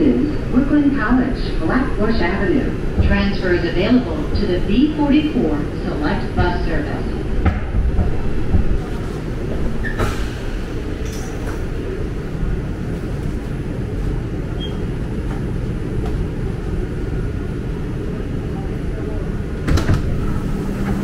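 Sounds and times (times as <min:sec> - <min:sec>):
subway train rumbling: 0:00.0 - 0:21.0.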